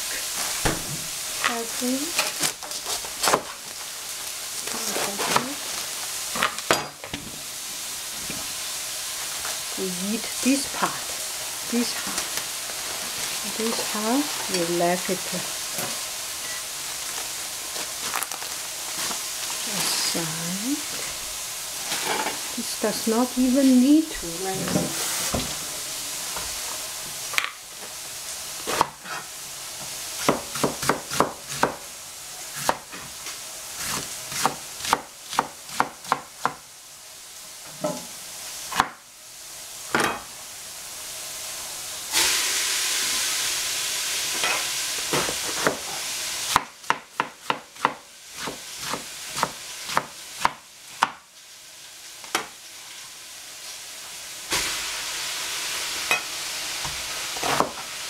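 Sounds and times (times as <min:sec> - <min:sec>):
tofu sizzling in a frying pan: 0:00.0 - 0:58.0
knife chopping on cutting board: 0:30.2 - 0:31.8, 0:45.1 - 0:45.8, 0:46.5 - 0:51.2, 0:57.4 - 0:57.8.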